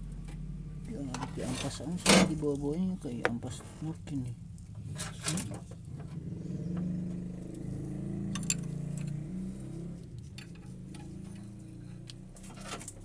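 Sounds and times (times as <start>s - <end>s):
light metallic clinks: 8.3s - 9.3s.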